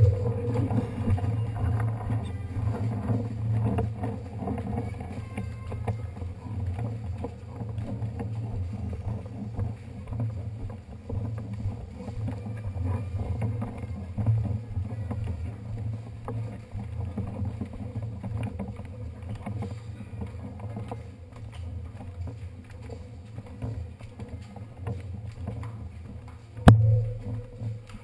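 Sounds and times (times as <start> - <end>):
low muffled rumble: 0.0 - 18.6, 26.6 - 28.0
bicycle knocks and clicks: 0.0 - 28.0.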